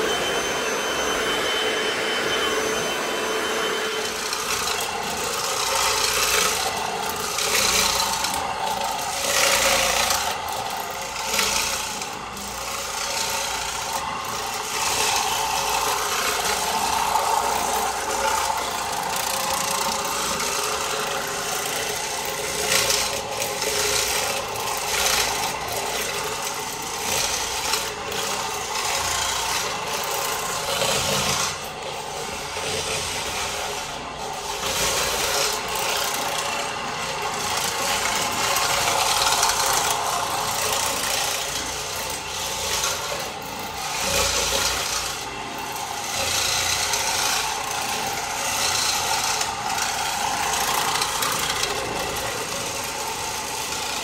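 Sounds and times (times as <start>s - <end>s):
floor machine motor hum: 0.0s - 54.0s.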